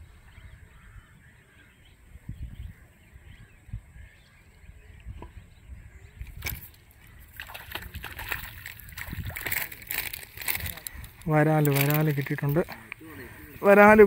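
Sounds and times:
faint bird calls: 0.0s - 9.0s
wind rumble on microphone: 0.0s - 11.3s.

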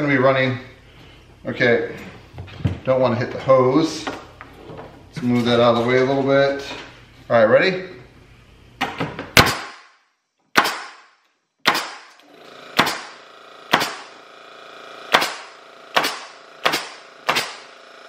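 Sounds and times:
nail gun firing into wood: 9.4s - 9.9s, 10.5s - 12.2s, 12.8s - 14.2s, 15.1s - 17.9s
electric air compressor running: 11.8s - 18.0s.

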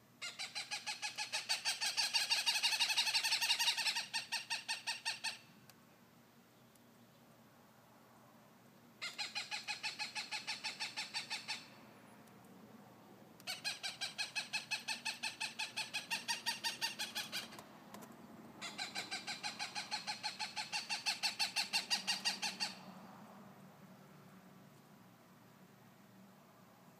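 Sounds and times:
hawk calling: 18.6s - 22.8s.

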